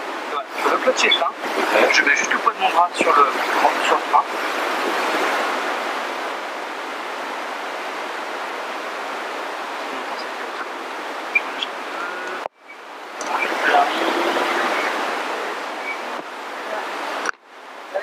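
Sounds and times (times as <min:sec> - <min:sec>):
helicopter rotor rushing air: 0:13.1 - 0:16.7.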